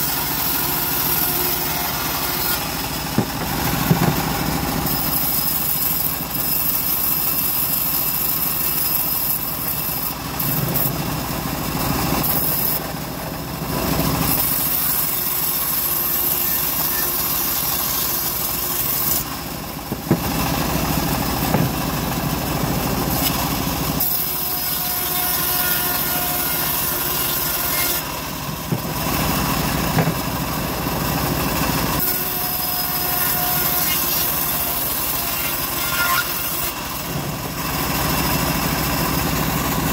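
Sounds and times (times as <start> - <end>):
bandsaw mill cutting timber: 0.0 - 39.9.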